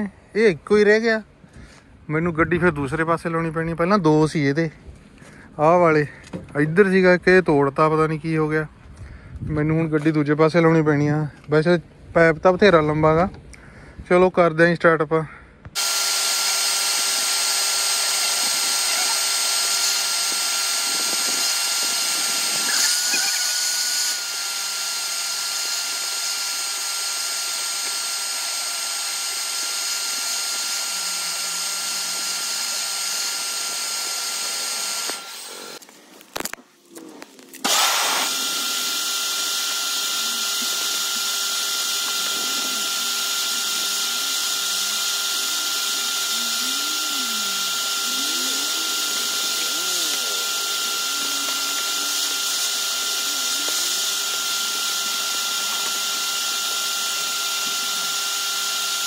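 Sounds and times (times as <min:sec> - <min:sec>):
vacuum cleaner whine: 0:15.8 - 0:35.8, 0:37.6 - 0:59.0.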